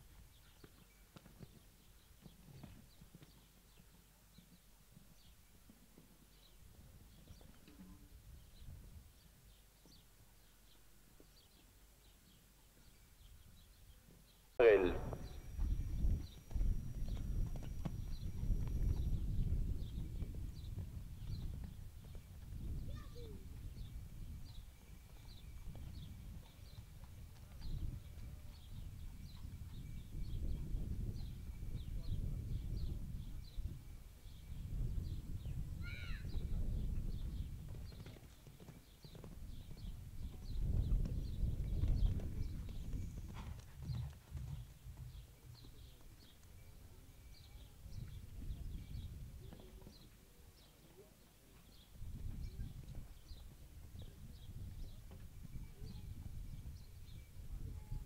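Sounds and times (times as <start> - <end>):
hoofbeats on sand: 15.2 - 32.8, 36.2 - 46.8.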